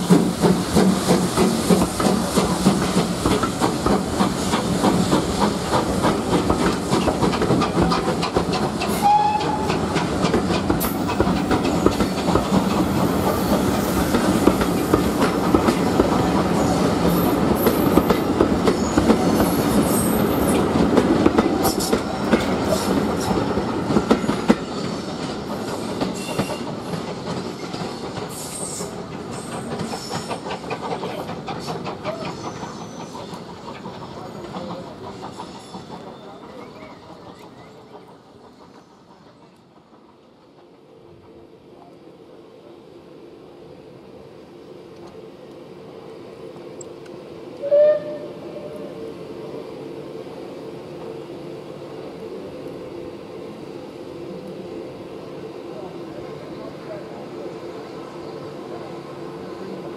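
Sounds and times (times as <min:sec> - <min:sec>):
train wheels clicking over rail joints: 0:00.0 - 0:41.9.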